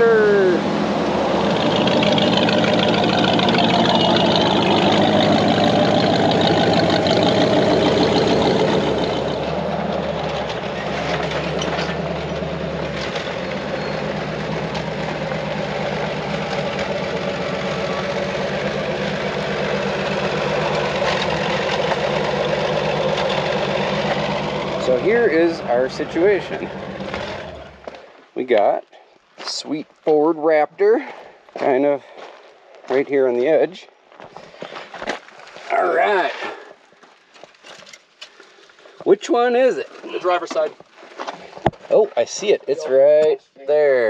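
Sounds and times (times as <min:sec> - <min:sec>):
vehicle engines crawling: 0:00.0 - 0:28.7, 0:39.0 - 0:43.9.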